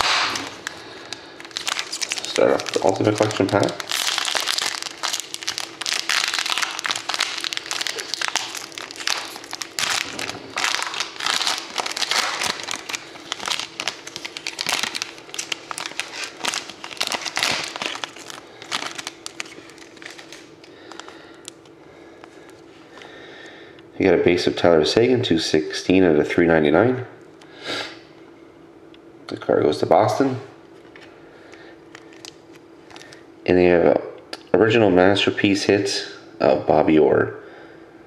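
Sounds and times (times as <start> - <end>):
foil wrapper crinkling: 0.0 - 22.6, 31.9 - 33.2.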